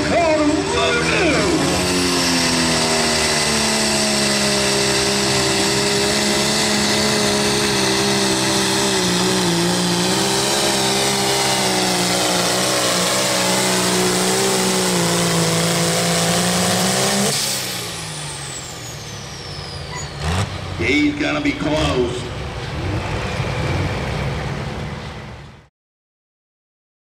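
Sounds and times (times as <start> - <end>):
tractor engine running flat out: 0.0 - 25.2.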